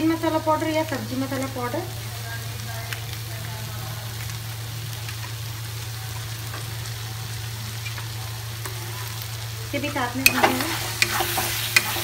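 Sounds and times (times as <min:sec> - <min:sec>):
food sizzling in a pan: 0:00.0 - 0:12.0
spoon clicking against pan: 0:10.2 - 0:12.0.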